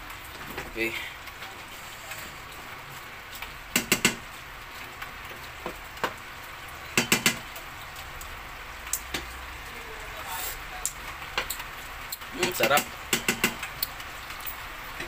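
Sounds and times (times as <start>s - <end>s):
wooden spatula knocking on pot: 3.7s - 4.2s, 7.0s - 7.4s, 12.4s - 13.6s.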